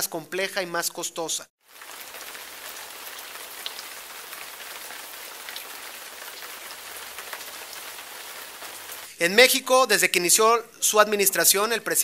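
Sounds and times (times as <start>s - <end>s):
rain hissing: 1.6s - 9.2s.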